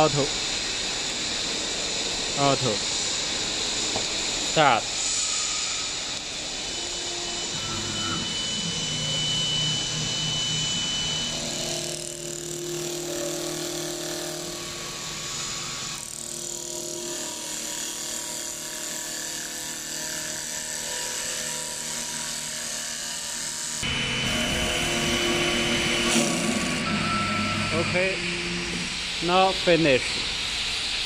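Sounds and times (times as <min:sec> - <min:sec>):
lathe motors whining: 0:00.0 - 0:31.0
cutter shaving wood: 0:06.2 - 0:28.8.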